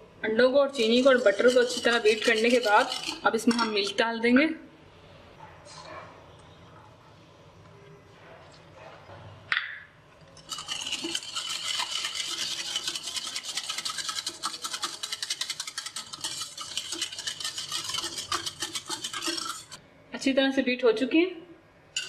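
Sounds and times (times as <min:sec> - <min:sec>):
batter beaten in a bowl: 0:00.8 - 0:04.0, 0:10.4 - 0:19.8.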